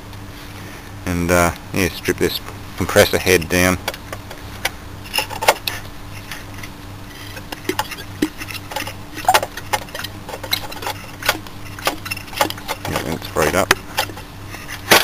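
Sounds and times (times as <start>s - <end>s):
faint steady hum: 0.0s - 15.0s
light metallic clicks and knocks: 7.3s - 14.2s.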